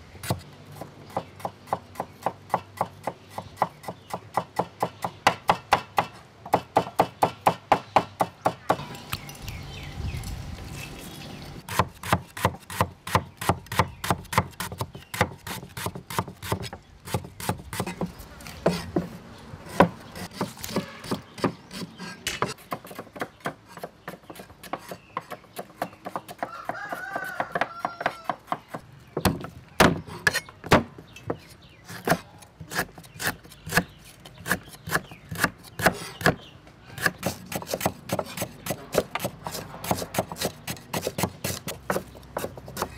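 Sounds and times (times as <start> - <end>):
cleaver chopping on wooden board: 19.7 - 36.4, 37.0 - 42.9.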